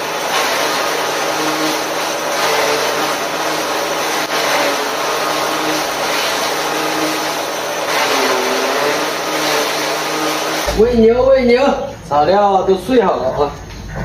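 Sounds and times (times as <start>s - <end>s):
forage chopper shredding grass: 0.0s - 10.8s.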